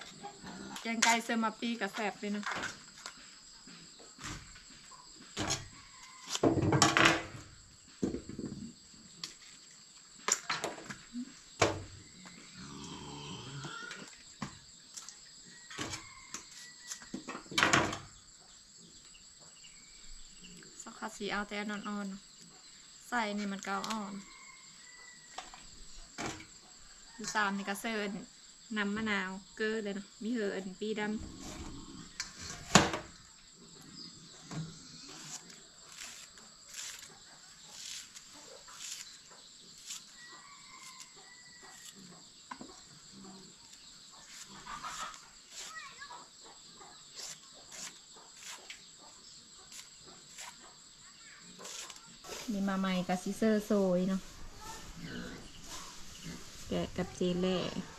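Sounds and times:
crickets chirring: 0.0s - 57.9s
distant rooster call: 15.5s - 17.3s, 23.9s - 25.9s, 40.1s - 42.0s
knife slicing: 35.2s - 40.2s, 47.2s - 48.7s, 51.6s - 52.5s.

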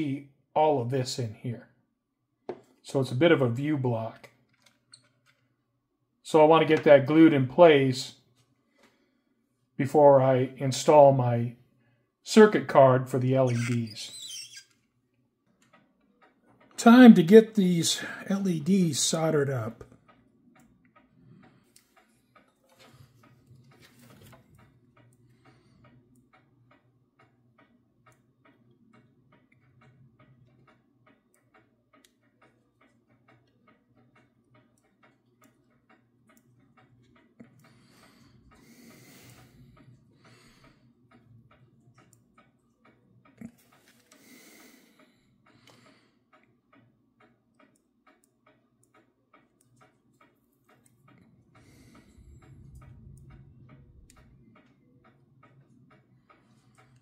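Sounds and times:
regular ticking: 12.3s - 57.0s
low steady hum: 49.3s - 57.0s.

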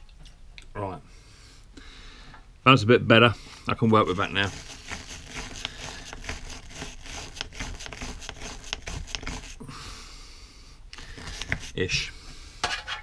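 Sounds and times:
soft rubbing: 4.0s - 9.6s, 11.0s - 12.1s
tool scraping metal bowl: 4.1s - 9.6s, 11.1s - 12.1s.

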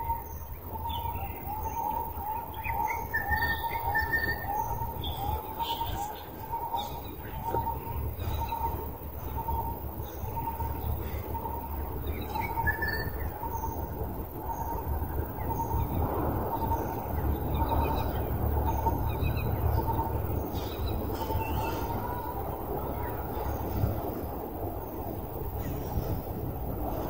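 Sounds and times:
small birds chirping: 0.0s - 26.3s
low outdoor rumble: 0.0s - 27.0s.

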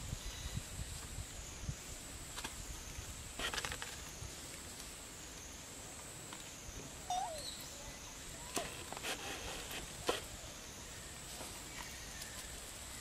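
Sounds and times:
crackling rustle: 0.8s - 6.7s, 7.6s - 13.0s.

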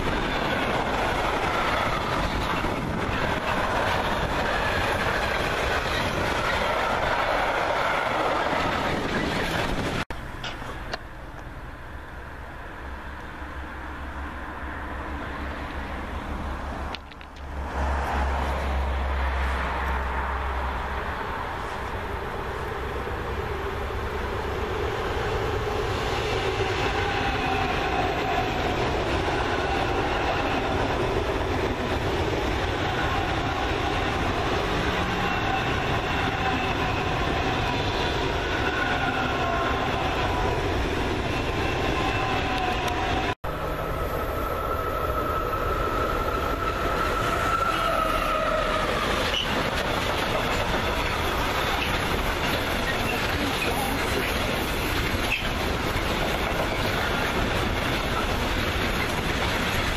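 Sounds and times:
freight train rolling past: 0.0s - 59.9s
high-speed train passing: 0.0s - 59.9s.

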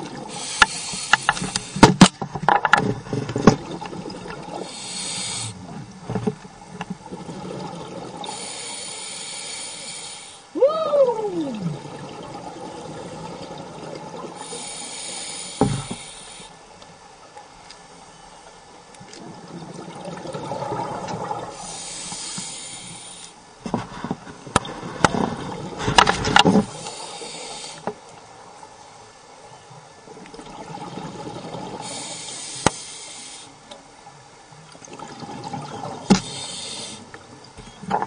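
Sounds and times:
exhaust bubbles hissing: 0.0s - 2.0s, 3.6s - 6.0s, 34.9s - 37.2s.

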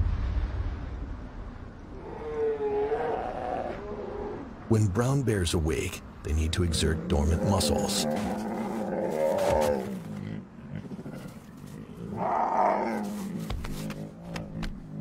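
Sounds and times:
bears growling: 1.9s - 4.7s, 6.3s - 15.0s.

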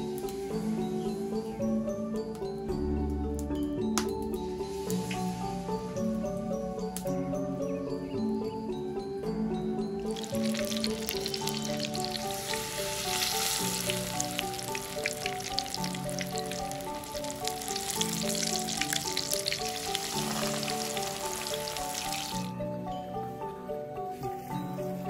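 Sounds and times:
soft background music: 0.0s - 25.0s
deep-frying sizzle and pops: 10.1s - 22.5s.

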